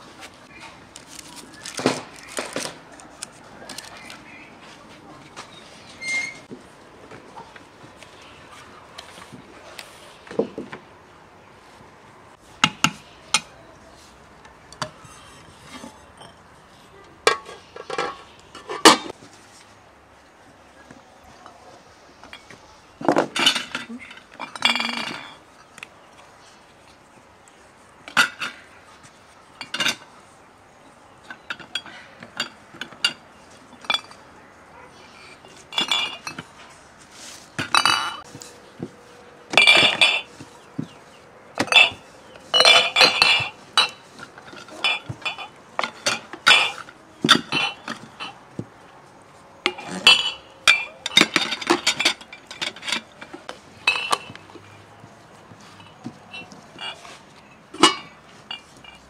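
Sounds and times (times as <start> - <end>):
dishes and utensils clinking: 14.8 - 16.5, 17.2 - 19.2, 22.3 - 25.7, 29.6 - 30.1, 35.5 - 36.7, 37.6 - 38.4, 39.5 - 41.0, 41.6 - 48.4, 49.6 - 54.8, 55.6 - 59.0.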